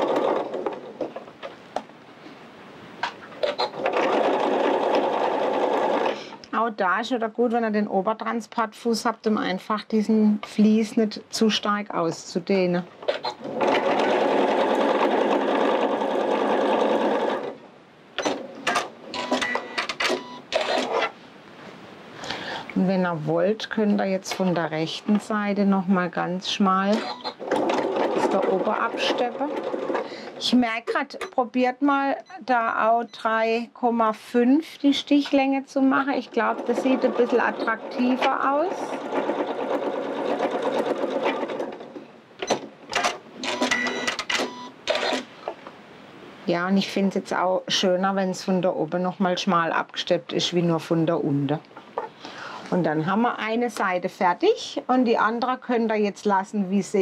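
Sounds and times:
sewing machine stitching: 0:00.0 - 0:00.9, 0:03.4 - 0:06.4, 0:13.1 - 0:17.6, 0:18.2 - 0:21.1, 0:26.9 - 0:30.6, 0:36.1 - 0:45.3
mechanical clicks and whirs: 0:18.2 - 0:21.2, 0:26.9 - 0:30.1, 0:36.5 - 0:45.6.

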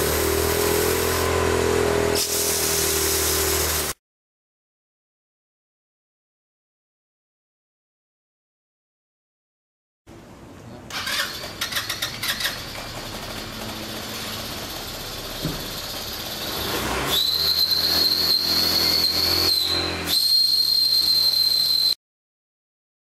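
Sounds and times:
air rushing hiss: 0:00.0 - 0:01.4, 0:02.0 - 0:04.0
small machine whining: 0:12.8 - 0:22.0.

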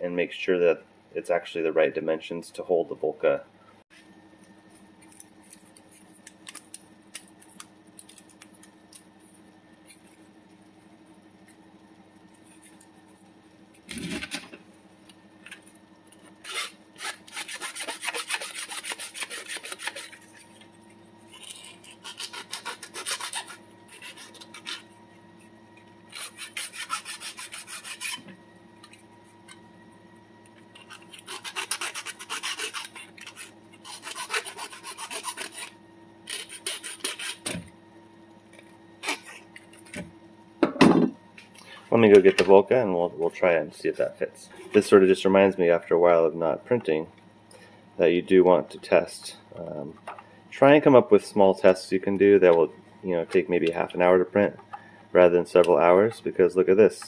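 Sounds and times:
metal file rasping on plastic: 0:16.4 - 0:20.4, 0:21.3 - 0:24.8, 0:26.1 - 0:28.3, 0:30.8 - 0:35.7, 0:36.3 - 0:37.6.

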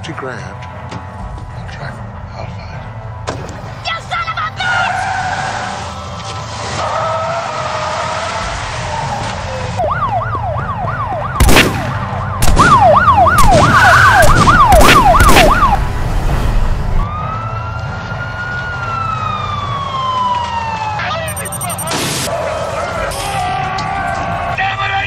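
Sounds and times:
police siren yelping: 0:08.9 - 0:11.4, 0:12.0 - 0:15.8, 0:17.0 - 0:22.0
loud bangs: 0:11.4 - 0:16.2.

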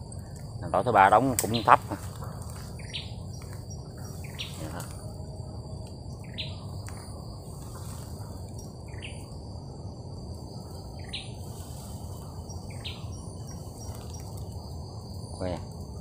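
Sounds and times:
high-pitched insect drone: 0:00.0 - 0:16.0
low steady rumble: 0:00.0 - 0:16.0
bird calling: 0:01.0 - 0:05.0, 0:06.2 - 0:06.7, 0:12.2 - 0:14.4.

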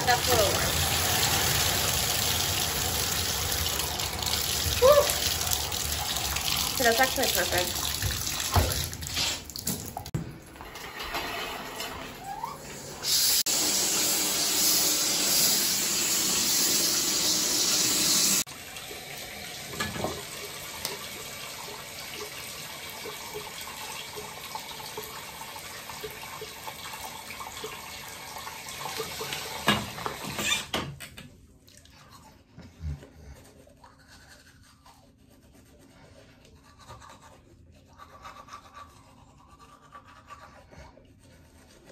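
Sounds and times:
bathtub faucet water running: 0:00.0 - 0:30.7
toothbrush scrubbing: 0:06.0 - 0:08.1, 0:31.7 - 0:41.9.

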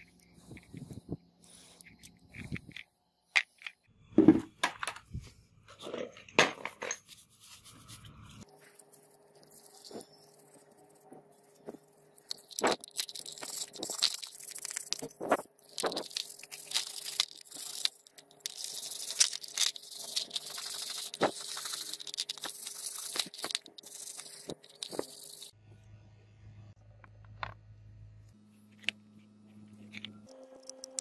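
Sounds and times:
brushes scrubbing metal: 0:07.1 - 0:25.5.

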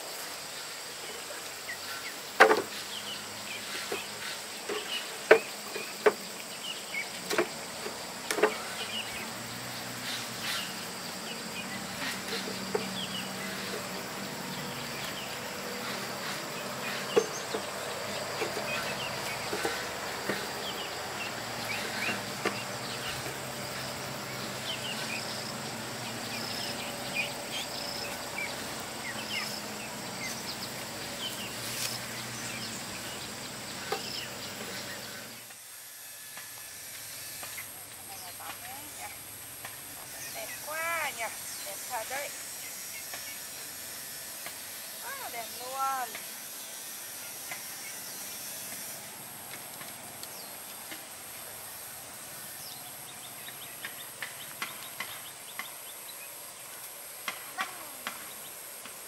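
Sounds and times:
high buzz of insects: 0:00.0 - 0:59.0
wooden knocks on bamboo slats: 0:02.4 - 0:02.8, 0:04.7 - 0:06.3, 0:07.2 - 0:08.7.

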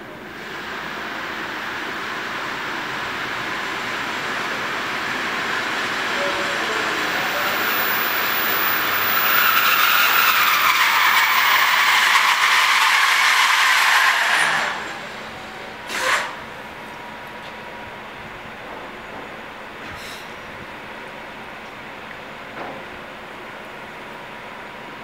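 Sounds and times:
train brakes squealing: 0:06.1 - 0:16.4, 0:19.8 - 0:20.4
hiss of air: 0:19.9 - 0:20.4.

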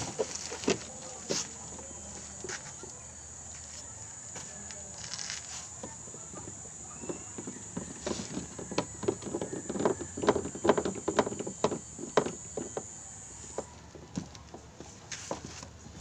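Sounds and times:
irregular clicks and knocks: 0:05.8 - 0:15.5.

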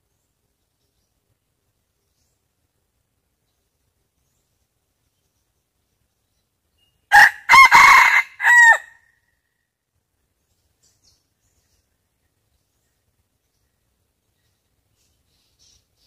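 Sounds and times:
rooster crowing: 0:07.1 - 0:09.0.

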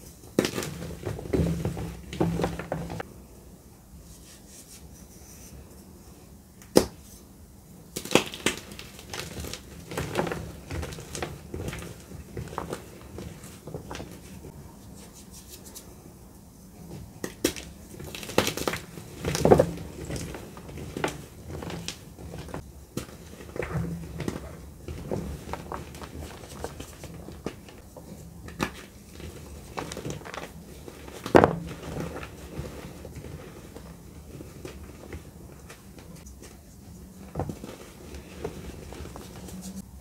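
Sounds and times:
hands crushing chalk blocks: 0:00.3 - 0:03.0, 0:07.9 - 0:15.9, 0:16.9 - 0:36.7.

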